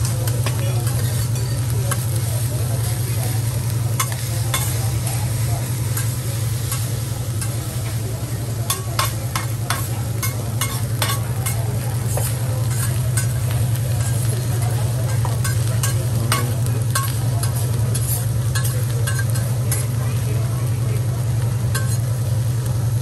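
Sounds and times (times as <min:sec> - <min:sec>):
metal spatula scraping and clacking: 0:00.0 - 0:02.1, 0:04.0 - 0:05.1, 0:05.9 - 0:07.6, 0:08.7 - 0:14.4, 0:15.0 - 0:19.9, 0:21.7 - 0:22.1
rice sizzling on griddle: 0:00.0 - 0:23.0.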